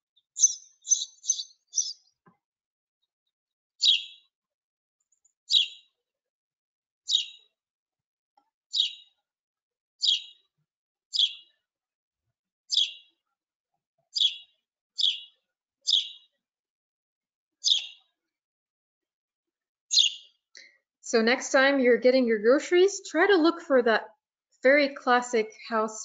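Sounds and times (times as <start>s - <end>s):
sparrow chirping: 0.0s - 2.1s, 3.8s - 4.2s, 5.5s - 5.9s, 7.1s - 7.5s, 8.7s - 9.2s, 10.0s - 10.4s, 11.1s - 11.6s, 12.7s - 13.1s, 14.1s - 16.4s, 17.6s - 18.0s, 19.9s - 20.3s.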